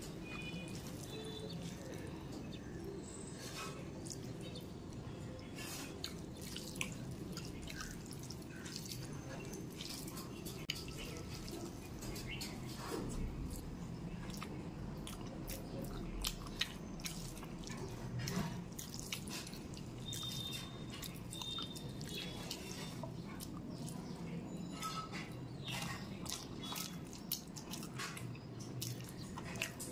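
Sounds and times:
chewing with wet smacks: 0.1 - 24.5, 25.2 - 29.9.

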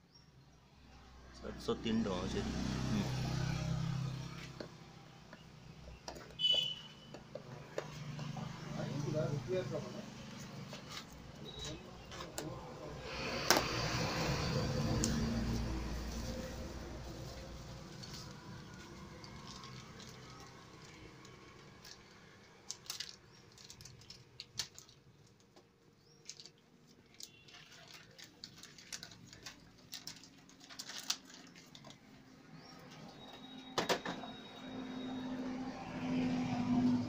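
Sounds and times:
packaging rustling: 16.2 - 33.1.

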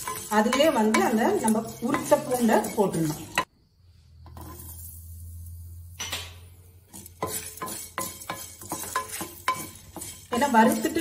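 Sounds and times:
spatula scraping roasting spices: 0.0 - 11.0
spatula knocking clay pan: 6.9 - 11.0.

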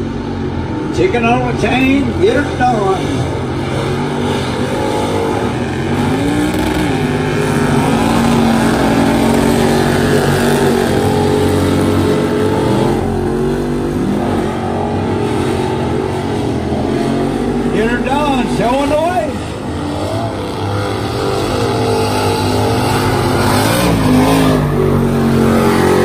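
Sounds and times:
truck engines revving hard: 0.0 - 26.0.

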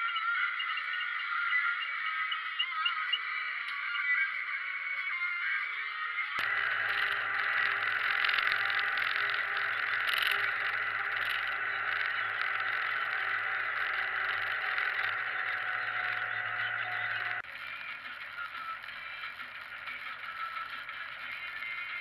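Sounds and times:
tractor engine drone: 6.4 - 22.0.

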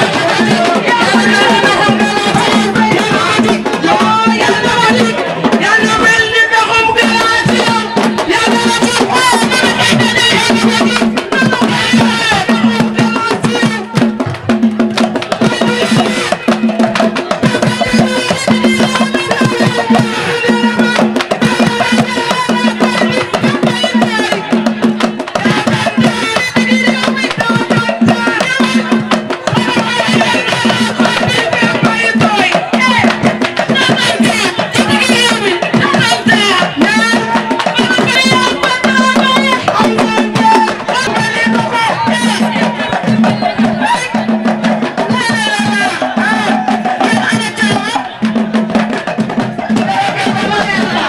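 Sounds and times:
music with percussion beat: 0.0 - 51.0
voices singing: 0.0 - 51.0.

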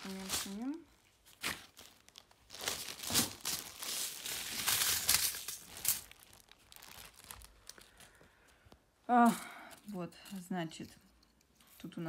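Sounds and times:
plastic packaging crinkling: 0.0 - 8.6.

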